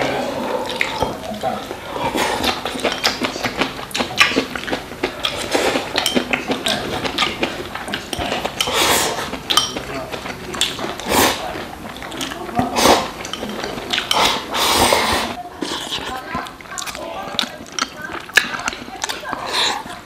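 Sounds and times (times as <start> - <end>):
eating sounds: 0.0 - 20.0
chopsticks clicking on bowls: 2.4 - 11.0, 11.6 - 14.5, 15.7 - 20.0.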